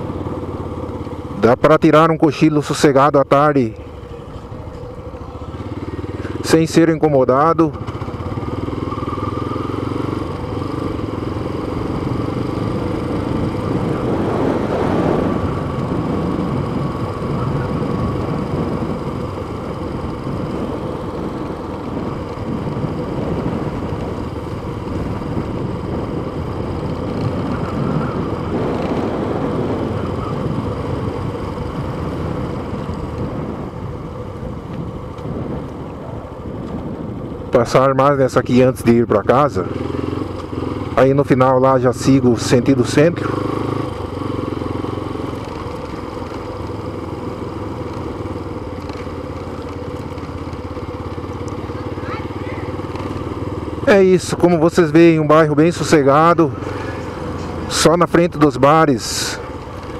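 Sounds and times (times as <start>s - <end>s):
motorcycle engine running: 0.0s - 59.9s
wind rumble on microphone: 11.9s - 39.4s.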